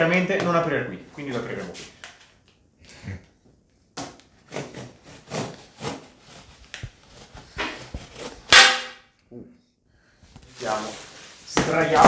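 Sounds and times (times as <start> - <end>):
knife cutting cardboard: 4.0 - 8.8.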